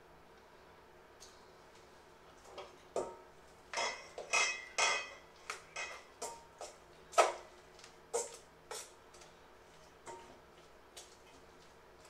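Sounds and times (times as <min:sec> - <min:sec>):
metal bowl ringing: 0:03.8 - 0:05.2.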